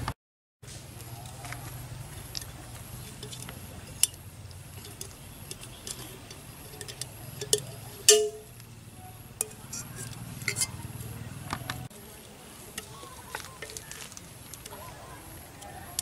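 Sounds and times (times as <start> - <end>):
steady low hum: 0.7 - 14.5
tin can clicks and taps: 4.8 - 8.6.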